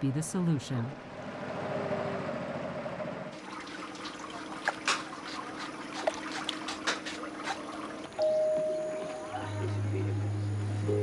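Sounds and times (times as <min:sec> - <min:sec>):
water trickling and dripping: 0:03.3 - 0:08.2
steady low hum: 0:07.3 - 0:11.0.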